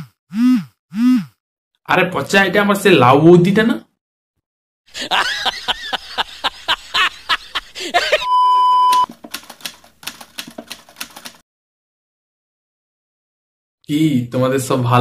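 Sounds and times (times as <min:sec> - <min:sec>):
loud steady beep: 0:08.2 - 0:09.1
typewriter keystroke clacks: 0:09.0 - 0:11.4.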